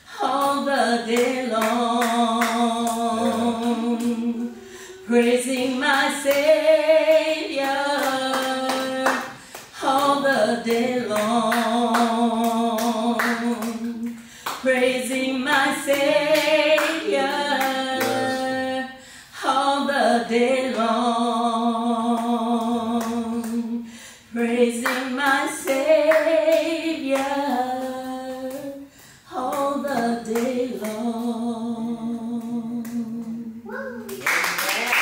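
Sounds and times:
woman singing solo: 0.0s - 14.0s, 14.7s - 21.3s
singer breathing: 4.5s - 5.1s, 14.2s - 14.6s, 18.9s - 19.4s, 23.8s - 24.3s, 28.8s - 29.3s.

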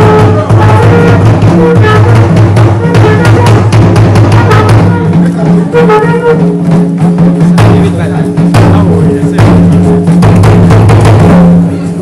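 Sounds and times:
loud music with drumming: 0.0s - 12.0s
voices: 4.3s - 10.1s.

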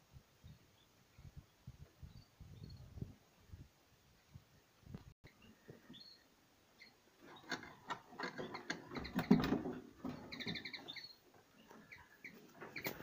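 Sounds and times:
songbirds chirping: 0.4s - 13.0s.

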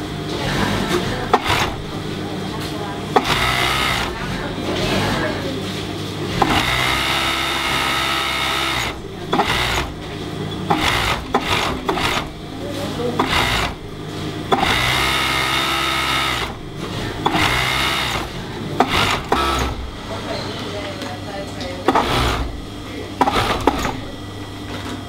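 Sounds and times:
sewing machine stitching: 0.4s - 2.0s, 3.1s - 5.3s, 6.3s - 10.1s, 10.7s - 12.4s, 13.0s - 19.9s, 21.9s - 22.6s, 23.2s - 24.1s.

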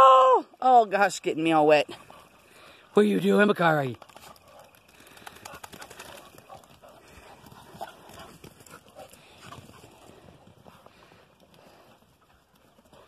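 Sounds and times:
small clicks and scuffs: 4.0s - 7.0s.

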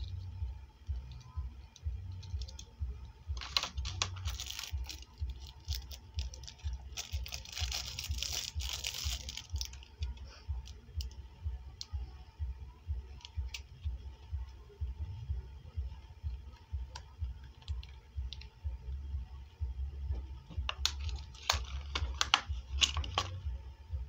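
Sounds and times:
plastic packaging crinkling: 3.4s - 9.9s, 20.8s - 23.4s.

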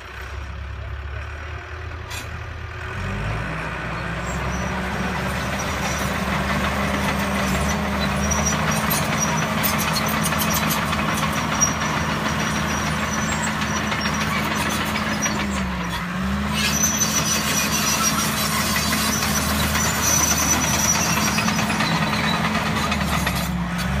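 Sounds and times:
heavy machine engine running: 0.0s - 24.0s.

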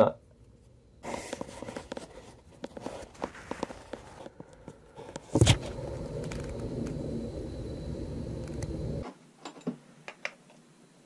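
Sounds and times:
steady low noise: 3.4s - 9.0s.

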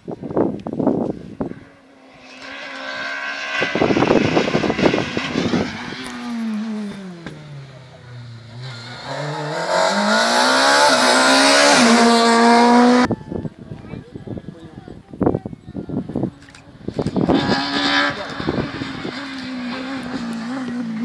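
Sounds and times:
rally car engine accelerating: 2.0s - 13.1s, 16.8s - 21.0s.

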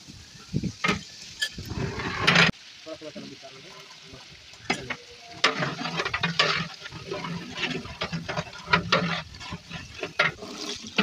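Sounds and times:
metal ladle scraping and clinking: 4.7s - 11.0s
liquid sloshing in pot: 5.3s - 11.0s.

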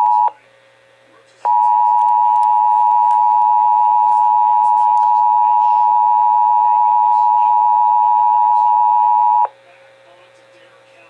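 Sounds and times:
two-tone alarm tone: 1.5s - 9.5s.

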